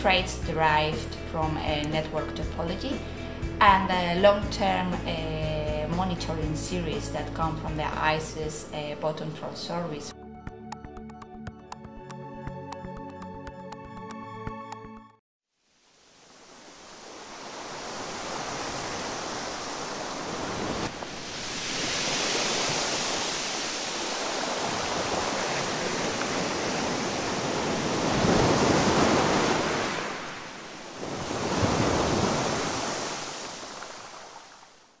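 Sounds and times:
ocean surf on sandy beach: 0:15.7 - 0:34.9.

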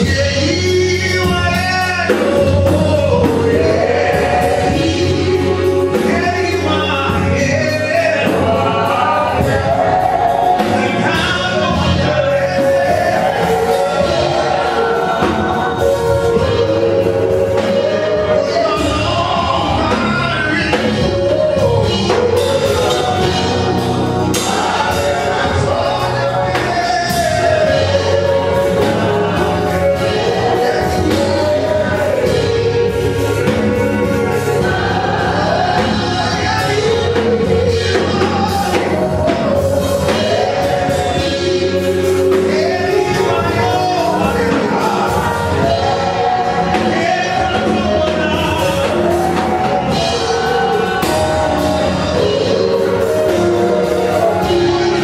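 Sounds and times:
bass line: 0:00.0 - 0:55.0
drum kit: 0:00.0 - 0:55.0
women singing: 0:00.0 - 0:55.0.

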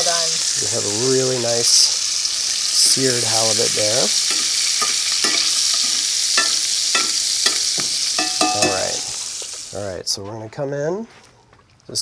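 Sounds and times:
fish sizzling in butter: 0:00.0 - 0:09.8
metal spoon clinking on pan: 0:04.3 - 0:09.2.

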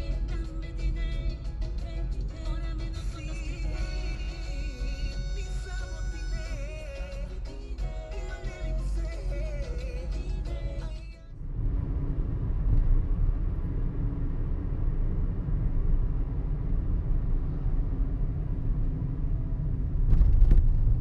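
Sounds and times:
music with singing: 0:00.0 - 0:11.4
car driving on paved road: 0:00.0 - 0:21.0.

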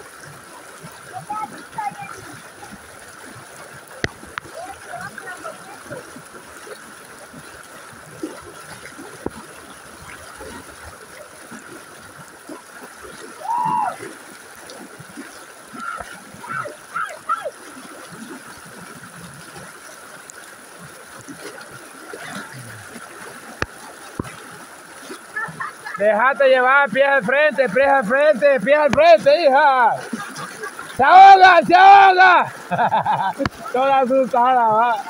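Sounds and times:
floodwater rushing and splashing: 0:00.0 - 0:35.0
person shouting: 0:13.4 - 0:14.0, 0:15.8 - 0:17.5, 0:31.0 - 0:32.5.

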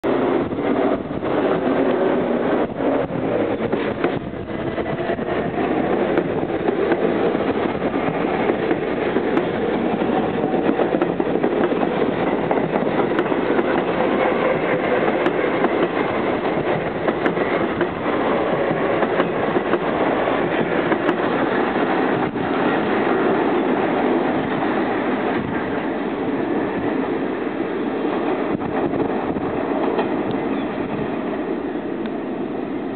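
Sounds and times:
steel wheels running on rails: 0:00.1 - 0:32.4.

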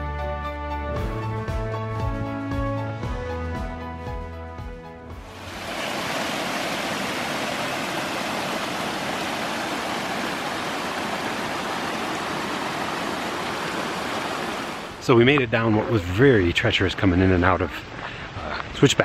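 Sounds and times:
stream rushing over rocks: 0:05.3 - 0:15.3.

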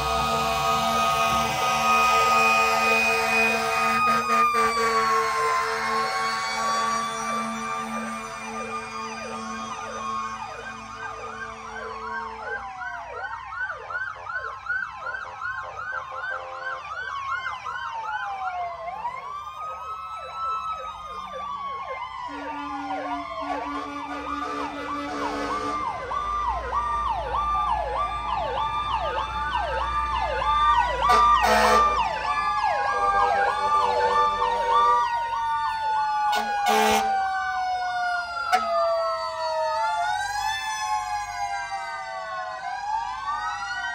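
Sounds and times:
fire truck sirens: 0:00.0 - 0:43.9
horn tones: 0:31.0 - 0:32.0, 0:36.3 - 0:37.1.

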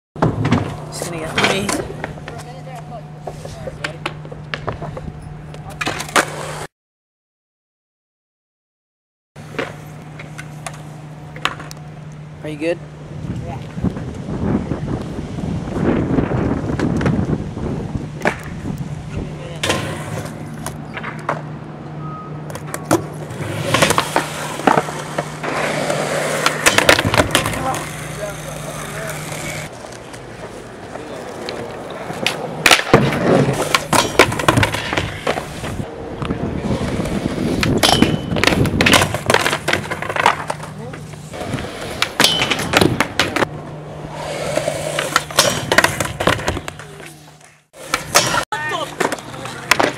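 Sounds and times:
skateboard wheels rolling on concrete: 0:00.2 - 0:06.7, 0:09.4 - 0:49.9
skateboard clacks: 0:18.2 - 0:18.6, 0:22.4 - 0:43.6, 0:44.5 - 0:49.9
skateboard clacking on rail: 0:23.7 - 0:30.2.

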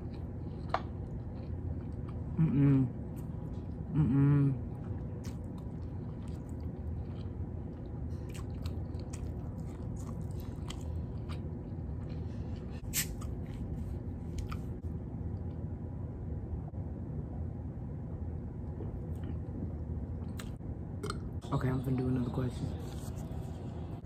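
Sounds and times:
person chewing food: 0:00.0 - 0:14.8, 0:18.7 - 0:21.3
steady low hum: 0:00.0 - 0:24.0.

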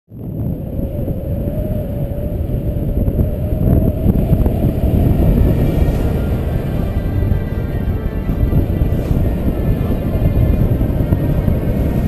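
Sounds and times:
faint wavering hum: 0:00.1 - 0:12.0
wind rushing over microphone: 0:00.1 - 0:12.0.

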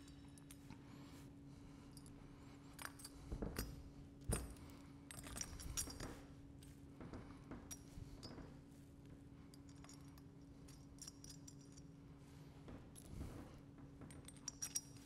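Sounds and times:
steady low hum: 0:00.0 - 0:15.0
small metal parts clinking: 0:05.1 - 0:06.1, 0:09.5 - 0:12.0, 0:14.0 - 0:15.0.

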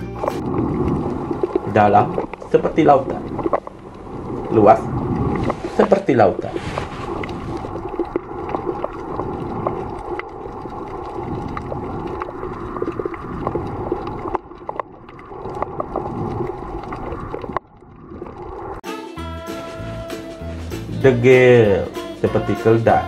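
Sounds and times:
underwater rumble and hum: 0:00.0 - 0:18.8
sharp clicks and crackles: 0:00.2 - 0:05.6, 0:06.4 - 0:18.8.

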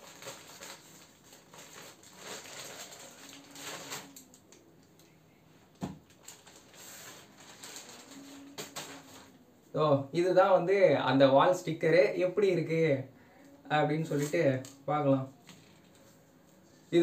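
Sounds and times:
plastic bag crinkling: 0:00.0 - 0:04.6, 0:06.0 - 0:09.4, 0:14.0 - 0:14.8.

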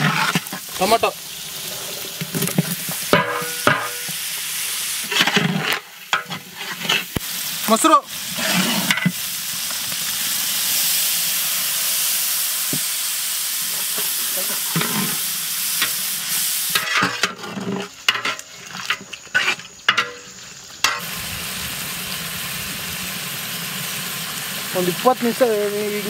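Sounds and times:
metal spatula scraping a pot: 0:00.0 - 0:01.0, 0:01.6 - 0:04.1, 0:05.0 - 0:07.2, 0:08.3 - 0:09.2, 0:14.4 - 0:15.2, 0:16.7 - 0:21.0
food sizzling in a pot: 0:00.0 - 0:26.0.

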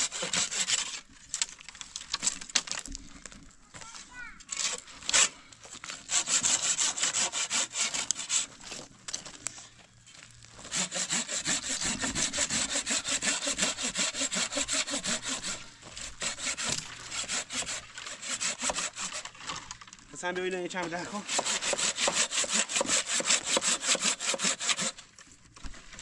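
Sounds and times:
hand saw cutting branch: 0:00.0 - 0:01.1, 0:04.5 - 0:08.6, 0:10.6 - 0:19.6, 0:20.8 - 0:25.0.

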